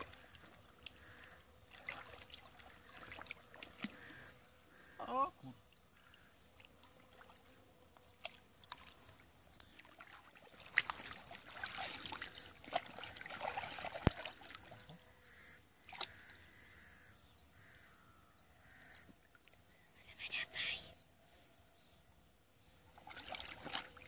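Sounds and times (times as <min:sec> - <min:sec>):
water splashing and trickling: 0:00.0 - 0:17.8, 0:18.5 - 0:20.2, 0:22.4 - 0:24.0.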